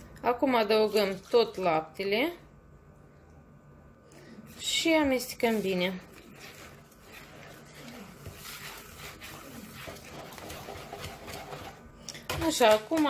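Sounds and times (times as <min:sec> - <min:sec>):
whisk beating batter in bowl: 0:04.5 - 0:13.0.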